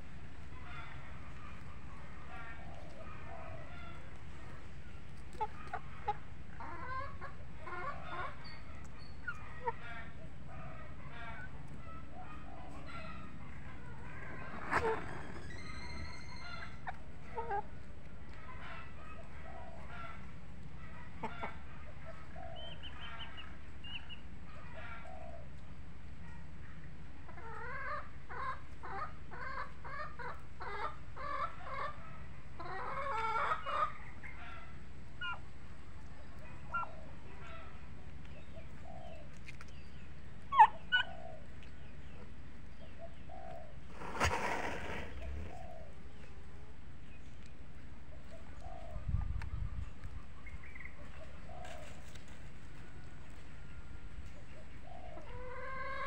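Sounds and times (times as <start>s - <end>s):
chickens and turkeys calling: 0.0s - 56.0s.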